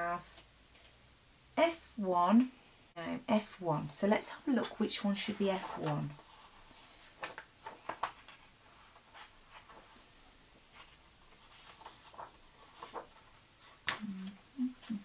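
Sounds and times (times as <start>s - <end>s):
paper pages rustling: 4.6s - 14.4s
person humming: 14.0s - 15.0s.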